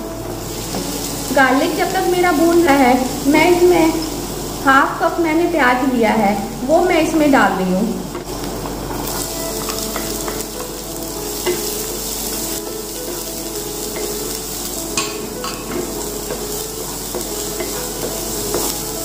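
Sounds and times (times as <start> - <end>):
onion and garlic sizzling: 0.0 - 19.0
wooden spatula scraping a pan: 8.1 - 19.0.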